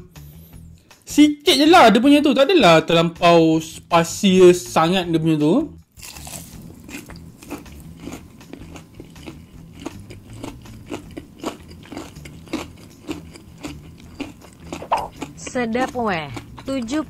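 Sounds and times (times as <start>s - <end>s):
chewing crispy fried chicken: 6.0s - 17.0s.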